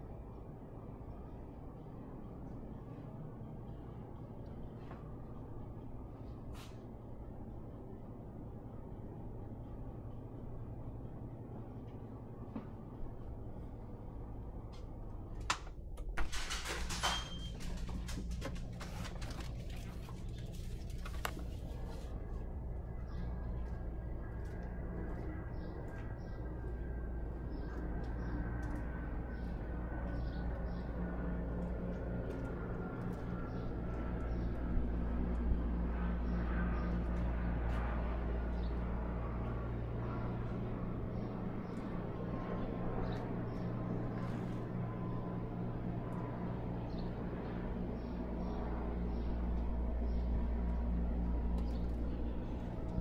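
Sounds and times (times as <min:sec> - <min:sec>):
steady low hum: 0:00.0 - 0:53.0
door squeak: 0:16.3 - 0:17.7.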